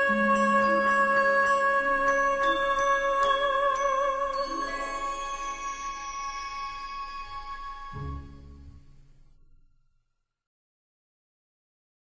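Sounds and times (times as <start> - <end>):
faint background song: 0.0 - 9.1.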